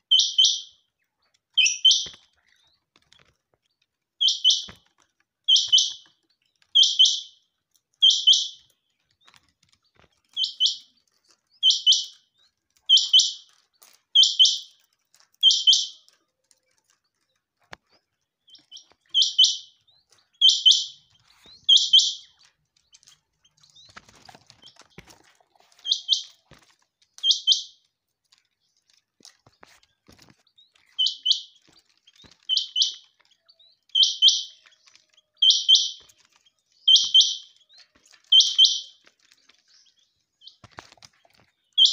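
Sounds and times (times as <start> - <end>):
quail calling: 0.0 - 0.7, 1.6 - 2.2, 4.2 - 4.8, 5.5 - 6.0, 6.8 - 7.4, 8.0 - 8.6, 11.6 - 12.2, 12.9 - 13.5, 14.2 - 14.7, 18.6 - 19.8, 20.4 - 22.3, 25.7 - 26.6, 31.0 - 31.6, 32.4 - 33.1, 33.9 - 36.1, 36.8 - 37.6, 38.3 - 39.0.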